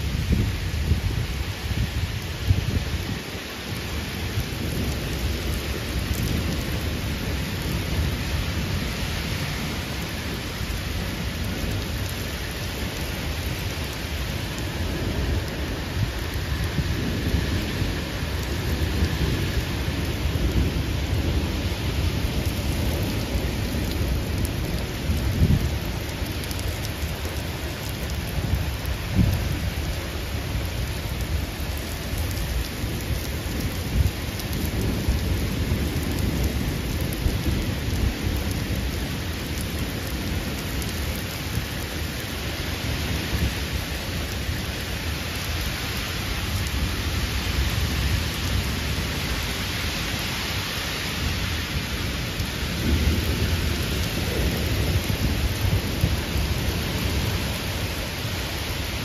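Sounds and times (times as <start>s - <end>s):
heavy rain downpour: 0.0s - 59.0s
low thunder rumble: 3.9s - 42.3s, 51.2s - 58.2s.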